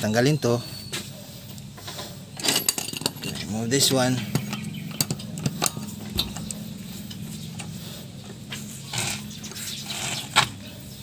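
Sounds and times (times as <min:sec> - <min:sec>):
steady low hum: 0:01.2 - 0:11.0
socket wrench clinking on lug nuts: 0:02.4 - 0:07.7.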